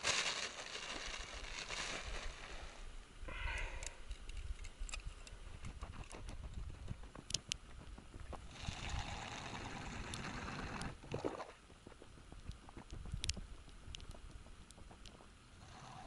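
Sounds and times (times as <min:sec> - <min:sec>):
wind rumble on microphone: 0:04.3 - 0:15.3.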